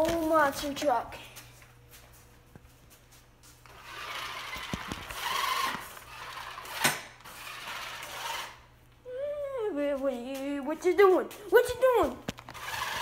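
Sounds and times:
small electric motor whirring: 3.7s - 8.6s, 12.5s - 13.0s.

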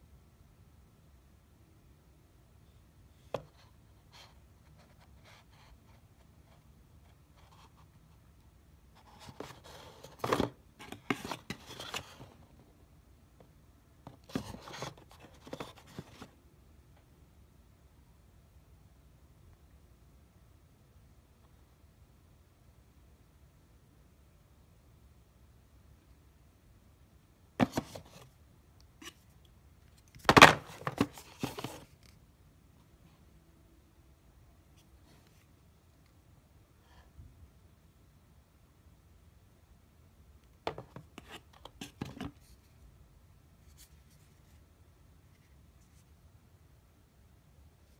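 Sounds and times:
hands handling device: 29.8s - 32.2s.

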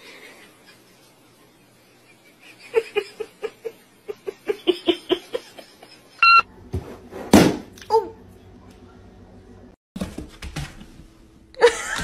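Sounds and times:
electronic beep: 6.2s - 6.4s
person giggling: 11.6s - 12.0s.

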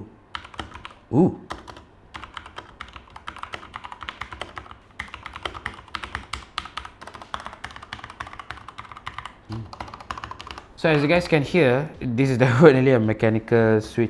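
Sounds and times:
fast typing on mechanical keyboard: 0.3s - 10.7s.

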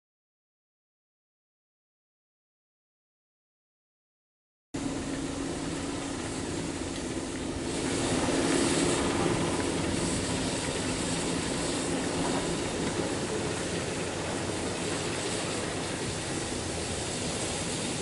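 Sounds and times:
diesel locomotive engine drone: 4.8s - 18.0s
steady hiss: 4.8s - 18.0s.

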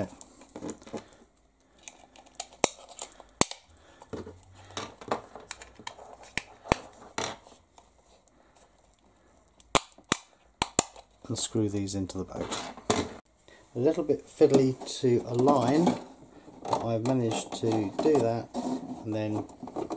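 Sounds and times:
rustling and scraping of plastic: 0.0s - 8.8s, 13.9s - 19.9s.

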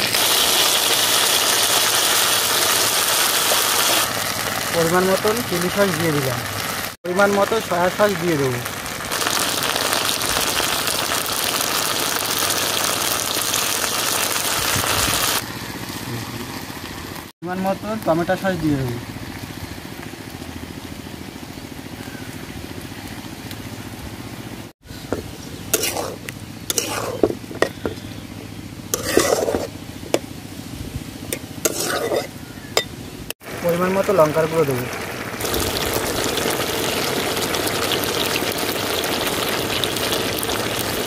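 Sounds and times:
sauce sizzling in a wok: 0.0s - 23.0s, 25.6s - 28.0s, 28.9s - 29.8s, 31.4s - 32.4s, 33.4s - 41.0s
small engine idling: 15.3s - 31.6s.

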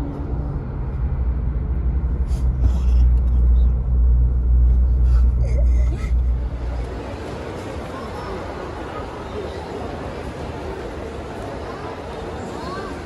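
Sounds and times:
car interior road rumble: 0.0s - 7.0s.

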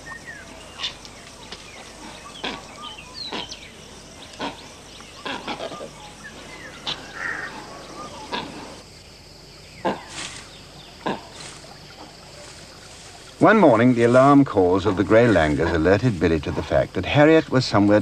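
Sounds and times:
birds chirping: 0.0s - 16.8s.

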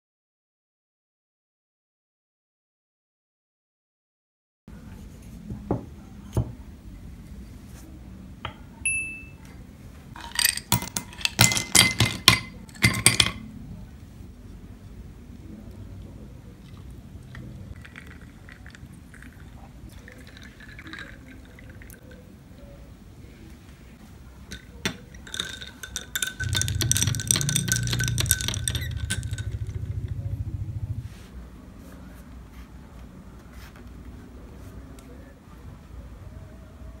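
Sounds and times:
low steady hum: 6.0s - 33.3s
metal straw clinking glass: 10.2s - 13.4s, 17.8s - 22.2s, 24.5s - 29.9s
milk pouring over ice: 16.5s - 22.2s, 24.5s - 29.8s.

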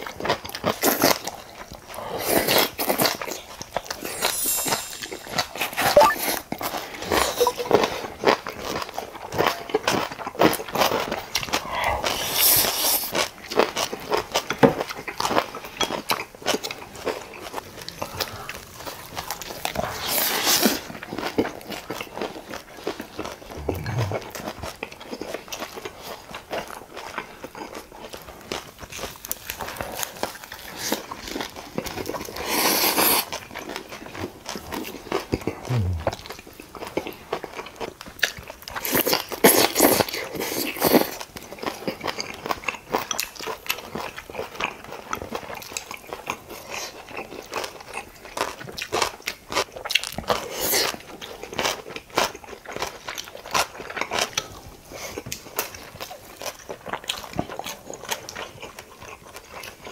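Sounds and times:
wet chewing: 8.6s - 59.9s
crunchy bites: 23.5s - 24.5s.

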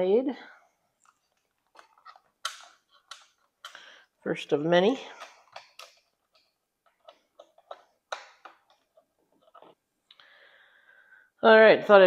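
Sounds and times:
battery cable clicking and tapping: 1.0s - 3.9s, 5.1s - 9.0s.

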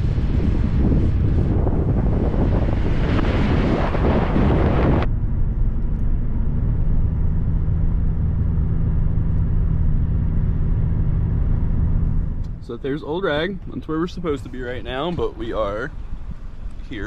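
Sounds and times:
car driving hum: 0.0s - 17.0s
wind buffeting microphone: 0.0s - 17.0s.

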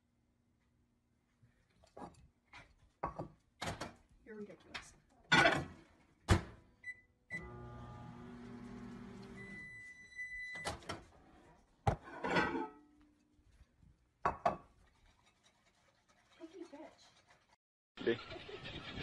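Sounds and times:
microwave oven humming: 7.3s - 10.6s.

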